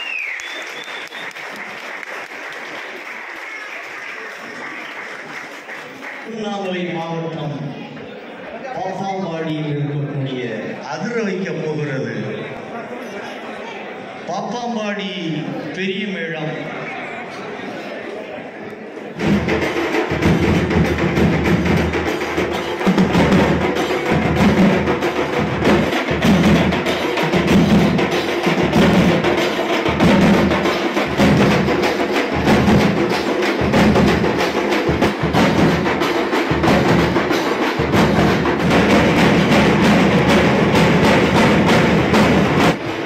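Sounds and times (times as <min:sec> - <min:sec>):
large drums pounding: 0:19.2 - 0:43.0.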